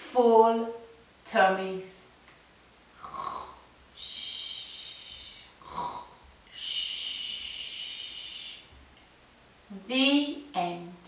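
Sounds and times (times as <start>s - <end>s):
woman imitating snoring: 3.0s - 8.6s.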